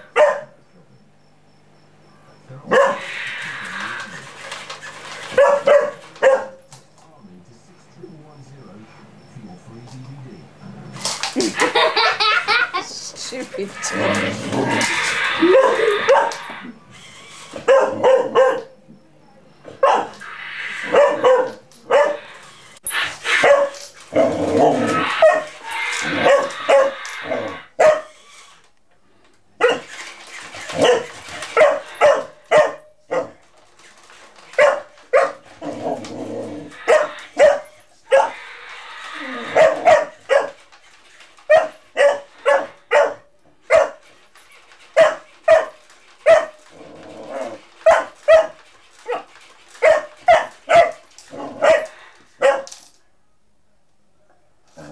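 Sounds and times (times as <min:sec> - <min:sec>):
puppy barking: 0:00.0 - 0:00.6, 0:02.6 - 0:03.1, 0:04.6 - 0:06.7, 0:14.8 - 0:16.7, 0:17.5 - 0:18.8, 0:19.7 - 0:28.2, 0:29.6 - 0:30.0, 0:30.6 - 0:33.5, 0:34.5 - 0:35.5, 0:36.6 - 0:38.5, 0:39.3 - 0:40.7, 0:41.4 - 0:44.2, 0:44.8 - 0:46.7, 0:47.5 - 0:52.8
rough puppy vocalizing: 0:11.5 - 0:18.8, 0:19.7 - 0:28.6, 0:34.4 - 0:52.7.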